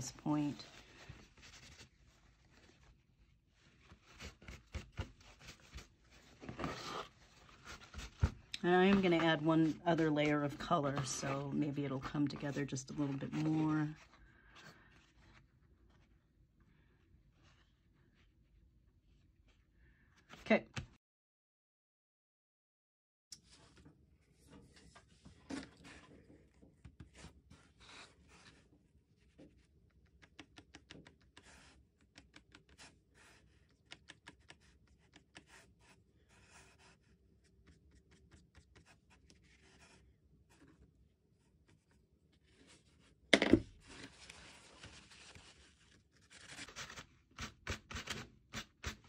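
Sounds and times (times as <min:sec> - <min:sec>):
card rubbed rustling: 0:00.3 - 0:11.6, 0:43.8 - 0:49.0.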